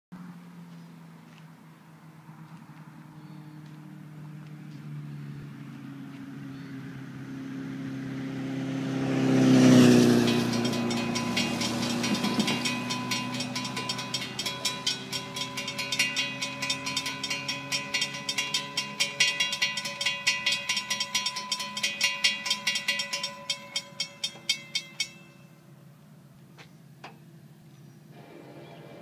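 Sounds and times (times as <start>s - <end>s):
car passing: 0.2s - 29.0s
crossing signal bell ringing: 9.6s - 25.9s.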